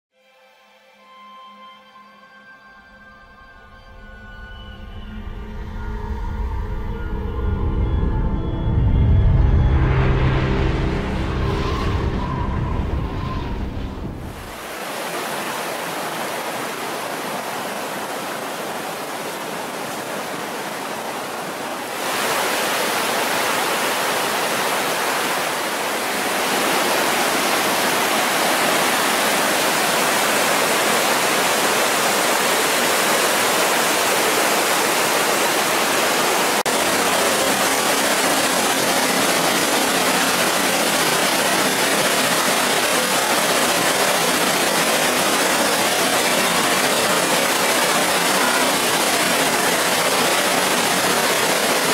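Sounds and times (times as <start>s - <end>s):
music: 0.1s - 14.5s
river rushing over rocks: 14.3s - 51.9s.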